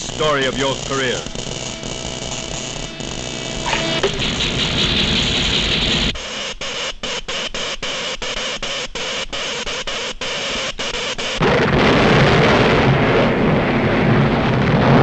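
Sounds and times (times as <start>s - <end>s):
electrical hiss and crackle: 0.0s - 7.5s.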